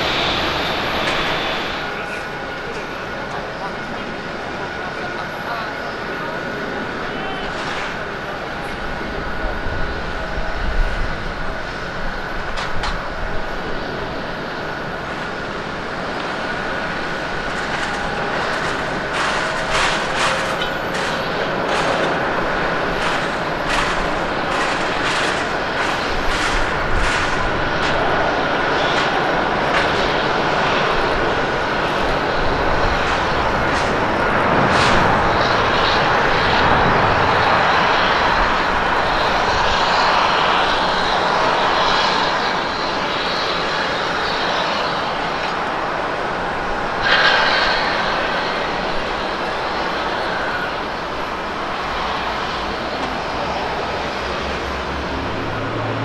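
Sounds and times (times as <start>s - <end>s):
jet engine roar: 0.0s - 56.0s.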